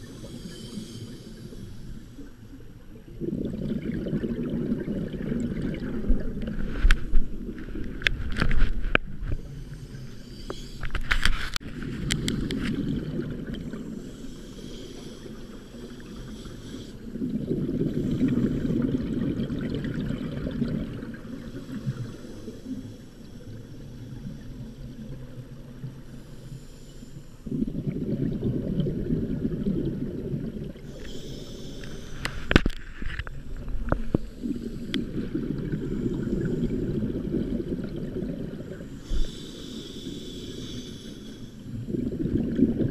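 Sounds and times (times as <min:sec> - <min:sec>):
regulator exhaust bubbles underwater: 0:03.0 - 0:09.5, 0:11.6 - 0:14.0, 0:17.1 - 0:22.1, 0:27.5 - 0:31.2, 0:31.8 - 0:39.0, 0:41.7 - 0:42.9.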